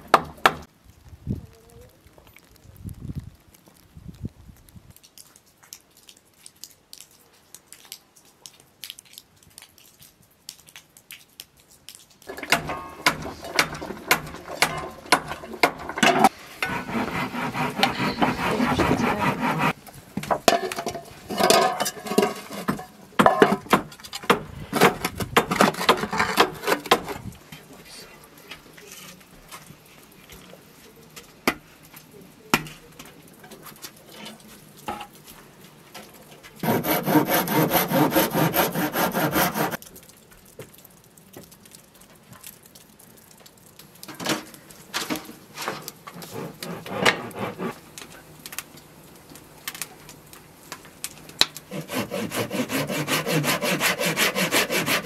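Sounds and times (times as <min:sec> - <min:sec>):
metal lid clattering on pot: 0:20.5 - 0:23.6.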